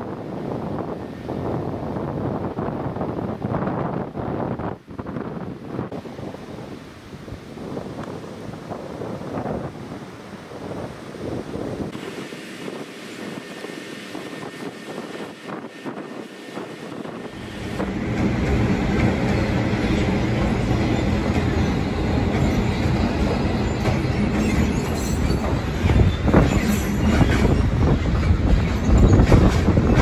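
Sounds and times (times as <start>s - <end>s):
freight train rumbling: 7.7s - 30.0s.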